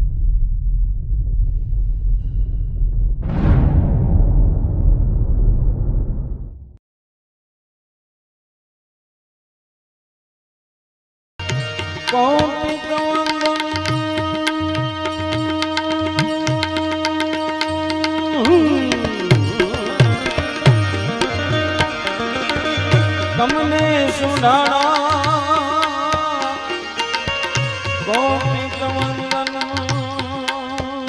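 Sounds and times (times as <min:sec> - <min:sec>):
harmonium chord: 0:11.4 - 0:30.8
tabla rhythm: 0:11.4 - 0:31.0
man singing: 0:12.1 - 0:20.6, 0:23.2 - 0:27.0, 0:28.0 - 0:31.0.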